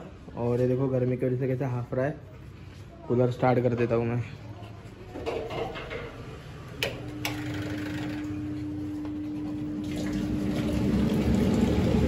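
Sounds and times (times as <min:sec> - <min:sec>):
fan motor humming: 0:06.6 - 0:12.0.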